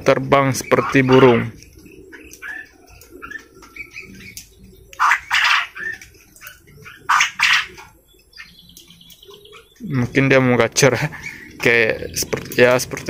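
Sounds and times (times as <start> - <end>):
quail calling: 0.3 - 10.2, 10.9 - 12.6.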